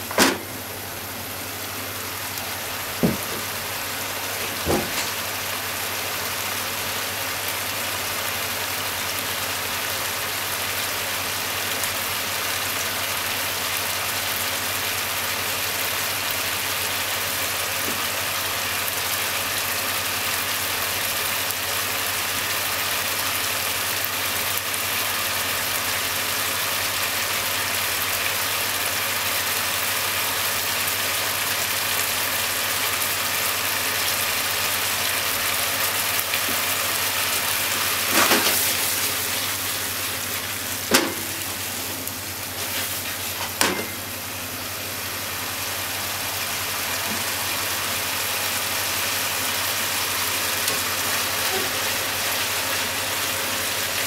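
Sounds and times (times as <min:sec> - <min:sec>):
food sizzling in a frying pan: 0:00.0 - 0:54.0.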